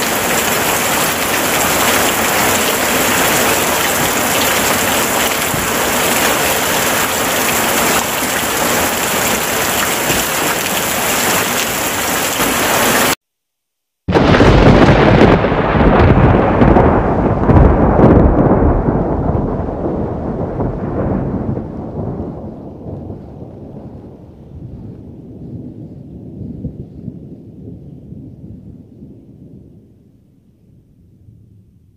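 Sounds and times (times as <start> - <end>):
heavy rain: 0.0 - 13.2, 14.1 - 25.6
thunder rumbling: 0.0 - 13.2, 14.1 - 31.9.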